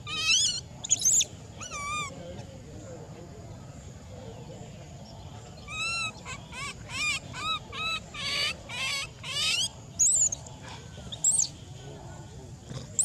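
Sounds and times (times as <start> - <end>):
baby monkey crying: 0.0 - 2.1, 5.7 - 10.4.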